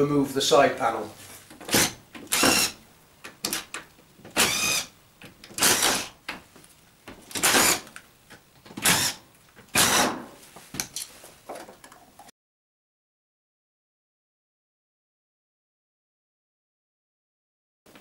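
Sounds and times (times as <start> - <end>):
screwdriver squeaking on screws: 1.7 - 2.8, 4.4 - 4.9, 5.6 - 6.1.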